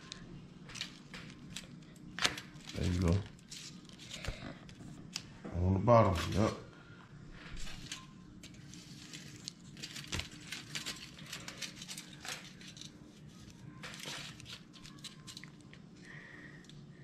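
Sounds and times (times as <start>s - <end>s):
aluminium foil crinkling: 0.0s - 5.3s, 7.5s - 15.8s.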